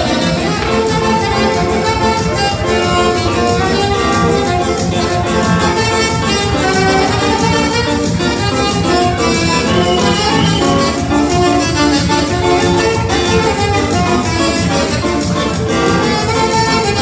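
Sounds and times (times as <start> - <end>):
live dance band: 0.0 - 17.0
saxophone melody: 0.0 - 17.0.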